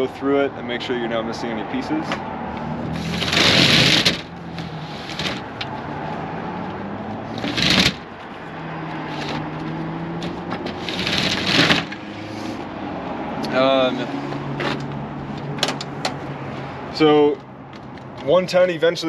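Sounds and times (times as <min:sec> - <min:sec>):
roll-up door rattling: 0:03.0 - 0:04.3, 0:07.4 - 0:08.1, 0:10.6 - 0:12.0.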